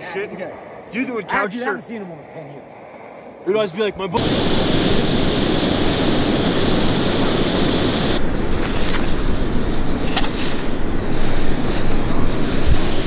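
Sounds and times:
camping stove roaring: 0:04.2 - 0:13.0
pot scooping snow crunch: 0:08.1 - 0:13.0.

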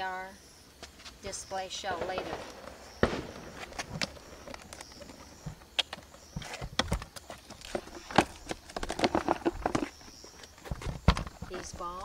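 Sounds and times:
cardboard boxes knocking and scraping: 0:06.2 - 0:12.0.

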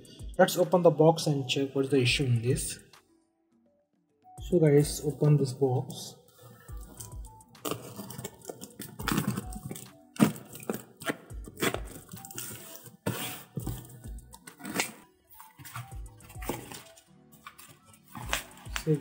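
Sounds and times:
faint background music: 0:00.0 - 0:19.0
packing tape tearing: 0:06.5 - 0:19.0.

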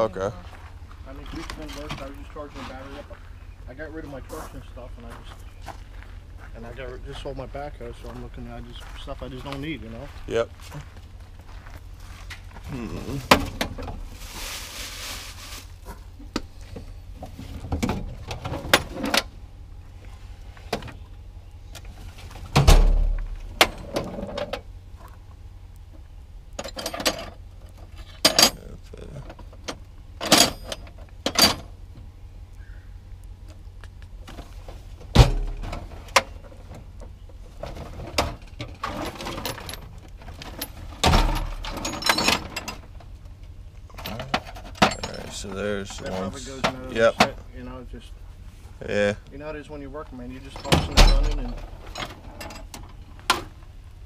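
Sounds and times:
heavier thumps: 0:22.3 - 0:24.2
metal hand tools clanking: 0:38.3 - 0:42.9, 0:50.4 - 0:52.9.

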